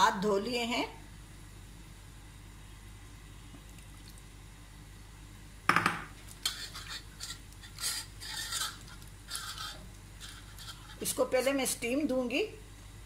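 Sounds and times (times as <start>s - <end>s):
glass bowl knocking on counter: 5.7s - 6.1s
wet rubbing of marinade on chicken: 6.4s - 11.2s.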